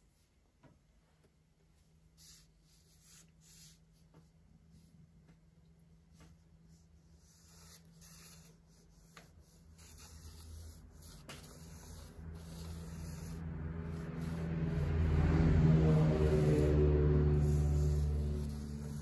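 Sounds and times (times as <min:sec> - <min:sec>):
crayon scratching on paper: 0:02.2 - 0:04.1, 0:06.7 - 0:19.0
low steady drone: 0:12.1 - 0:19.0.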